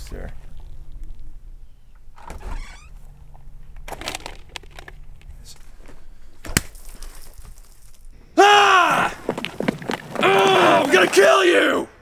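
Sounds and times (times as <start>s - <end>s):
footsteps: 8.9s - 11.5s.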